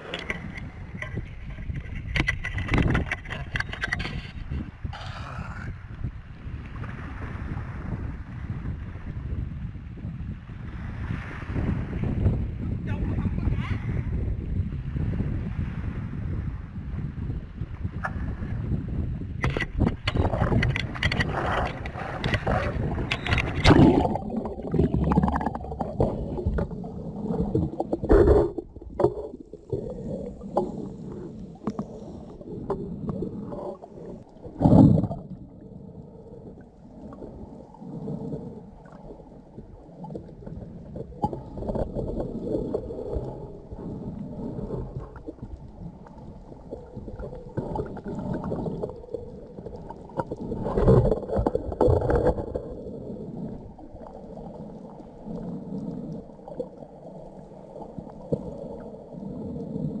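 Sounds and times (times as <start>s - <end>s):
muffled underwater rumbling: 0.0s - 60.0s.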